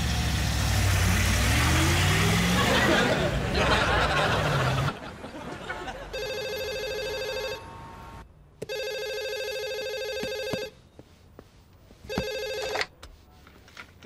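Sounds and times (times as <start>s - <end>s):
telephone ringing: 6.1s - 7.7s, 8.6s - 10.8s, 12.1s - 12.9s.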